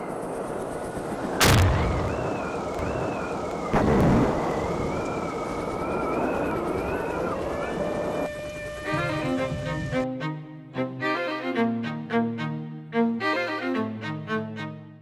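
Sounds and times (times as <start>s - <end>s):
crackling hiss: 0.0s - 9.2s
wavering high whine: 0.0s - 10.1s
booming hits: 1.4s - 5.0s.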